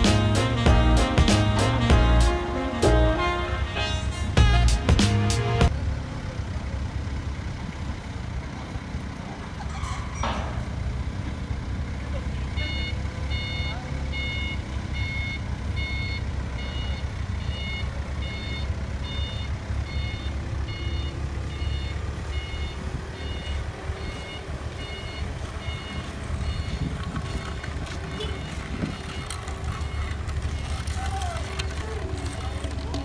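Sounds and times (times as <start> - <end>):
forklift engine rumble: 0.0 - 33.0
reversing alarm beeping: 12.5 - 31.0.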